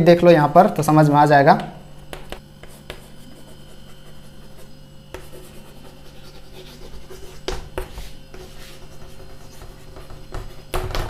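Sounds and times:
steady low hum: 0.0 - 11.0
chalk scratching on chalkboard: 2.1 - 10.7.

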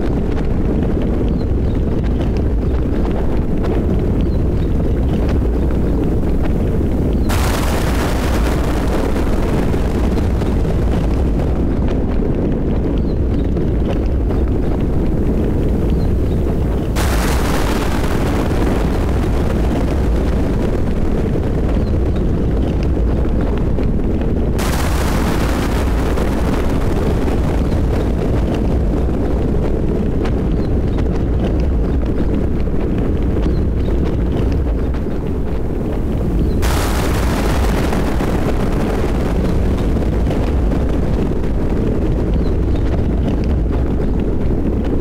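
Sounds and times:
rumble of thunder: 0.0 - 45.0
steady rain: 0.0 - 45.0
sharp thunder crack: 7.2 - 12.3, 15.8 - 22.4, 24.6 - 30.6, 36.5 - 42.0.

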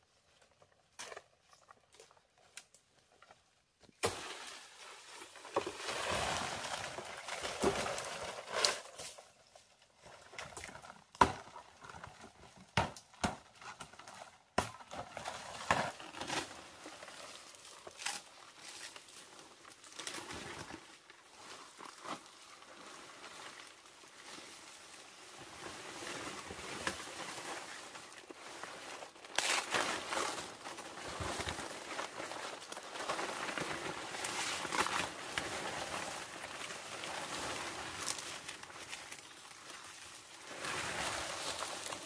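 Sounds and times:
leaves and branches rustling: 1.4 - 11.2, 13.5 - 42.0
branches snapping: 17.9 - 19.0, 29.2 - 35.6.

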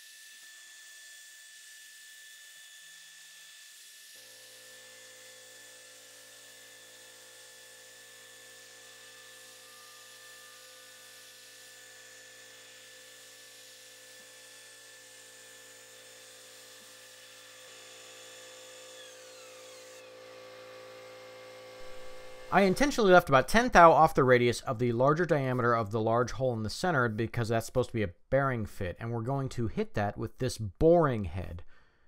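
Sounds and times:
milling machine spindle whine: 18.8 - 22.6.

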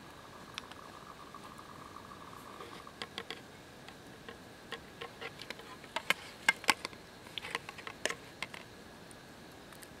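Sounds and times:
campfire crackling and popping: 0.0 - 10.0.

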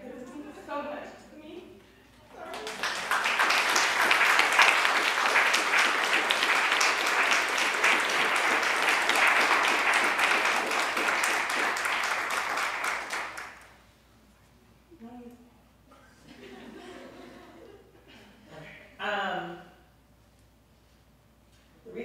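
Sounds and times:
audience applauding: 2.4 - 13.7.

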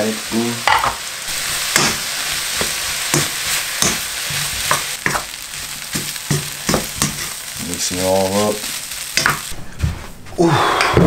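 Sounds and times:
rice and prawns sizzling in wok: 0.0 - 9.6
spatula scraping and knocking pan: 0.7 - 7.5.

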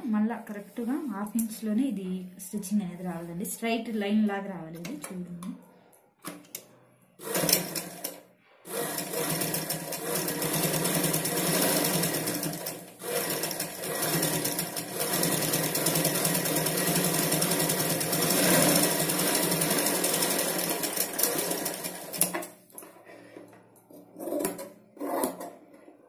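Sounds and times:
sewing machine running: 7.2 - 22.5.

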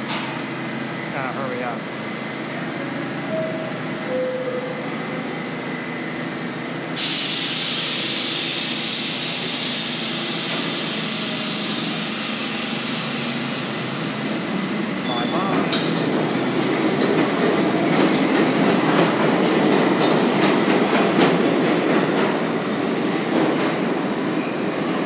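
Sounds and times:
subway train rumble: 0.0 - 25.0
loud hiss: 7.0 - 14.5.

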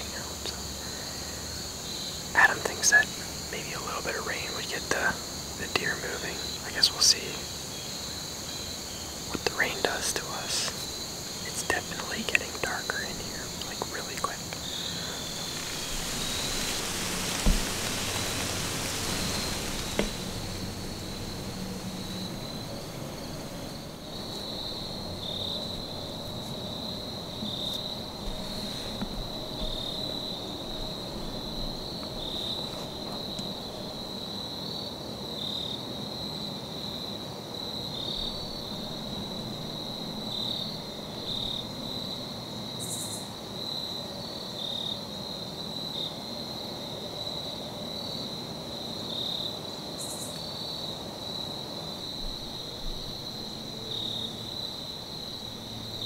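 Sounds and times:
faint hiss: 0.0 - 36.4
crickets trilling: 0.0 - 56.0.

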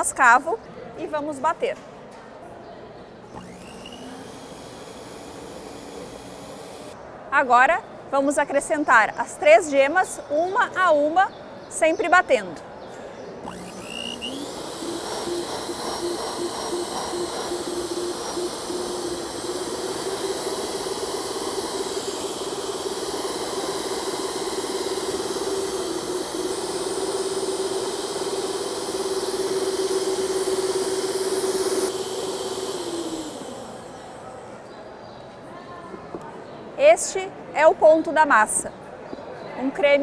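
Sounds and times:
stand mixer motor whirring: 3.3 - 7.0, 13.4 - 34.6.

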